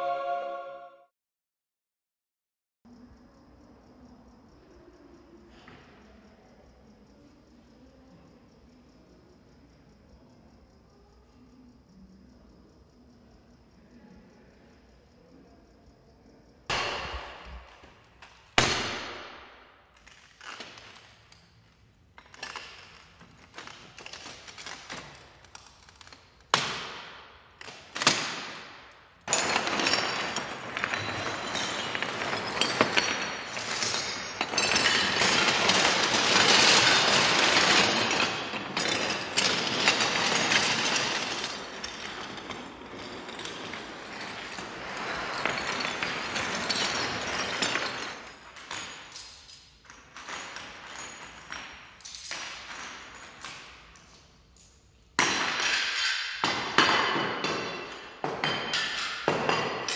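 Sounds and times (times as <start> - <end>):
small hard objects clattering: 29.2 - 54.3.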